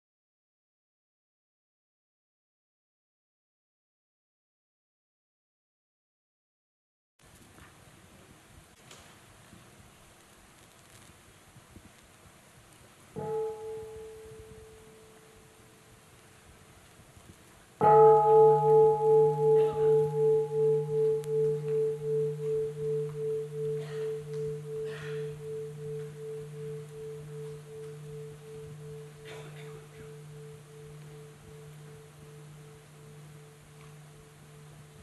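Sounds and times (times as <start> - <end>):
temple bell ringing: 13.2 - 15.7, 17.8 - 35.0.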